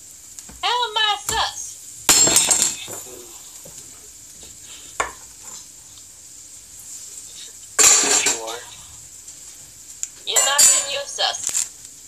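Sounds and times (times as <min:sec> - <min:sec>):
faint steady hiss: 0:00.0 - 0:12.0
cookware clacking: 0:02.1 - 0:03.1, 0:07.8 - 0:08.6, 0:10.3 - 0:11.2.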